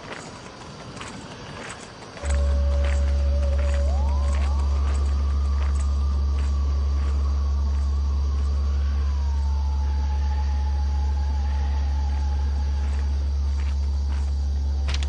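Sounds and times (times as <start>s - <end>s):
thin whistling tone: 2.2s - 10.7s
low drone: 2.2s - 15.0s.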